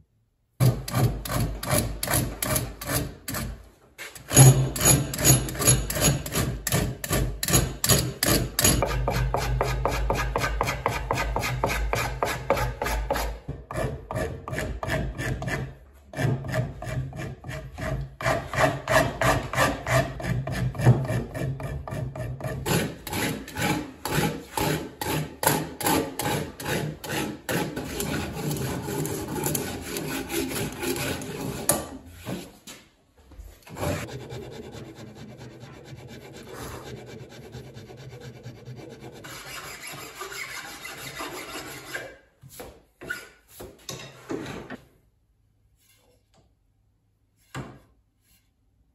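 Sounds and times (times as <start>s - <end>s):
rasp filing wood: 4.2s - 32.5s, 33.7s - 42.2s.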